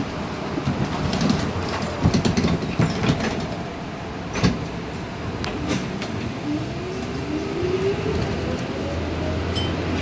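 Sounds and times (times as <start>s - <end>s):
streetcar rumbling on track: 0.0s - 10.0s
knocks and rattles: 0.6s - 3.6s.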